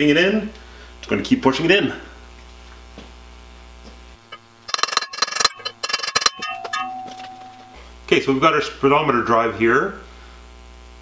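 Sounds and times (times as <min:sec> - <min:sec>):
low electrical hum: 0:00.0 - 0:11.0
small metal parts clinking: 0:04.3 - 0:07.8.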